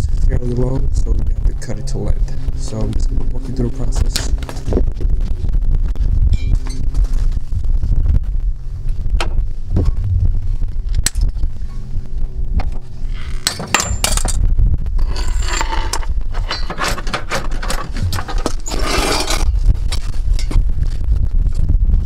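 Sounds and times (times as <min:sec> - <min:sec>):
steady low rumble: 0:00.0 - 0:22.0
metal tools clinking and scraping: 0:13.4 - 0:14.4, 0:15.0 - 0:19.5.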